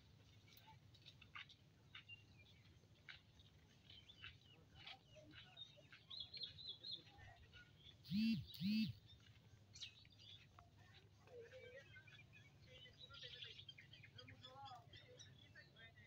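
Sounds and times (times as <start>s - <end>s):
small birds chirping: 0.5s - 16.0s
loud low bird calls: 8.1s - 9.0s.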